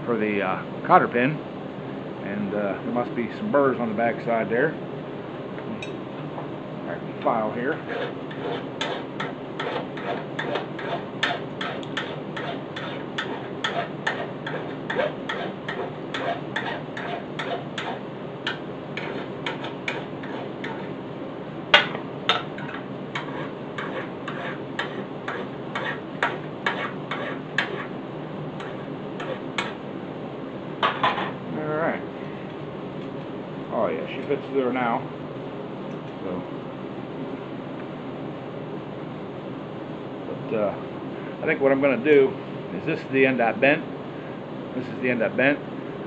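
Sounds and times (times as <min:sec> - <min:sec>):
hand file rasping on metal: 0:07.7 - 0:18.0, 0:19.0 - 0:20.9, 0:22.6 - 0:27.9.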